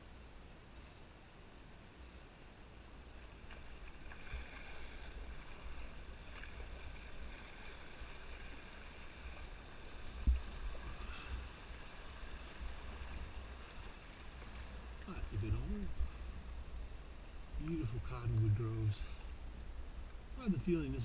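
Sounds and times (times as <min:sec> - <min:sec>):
water splashing around canoe hull: 0:03.1 - 0:15.6.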